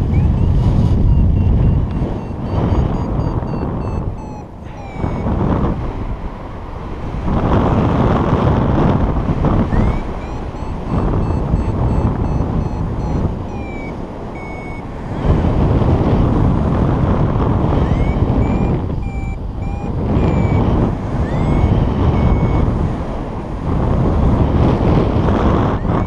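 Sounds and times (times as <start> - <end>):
rising electronic chirps: 0.0 - 5.4, 9.7 - 14.9, 17.8 - 22.7
variometer electronic beeps: 0.0 - 5.8, 9.6 - 16.3, 17.5 - 22.9, 25.0 - 26.0
wind rushing over microphone: 0.0 - 26.0.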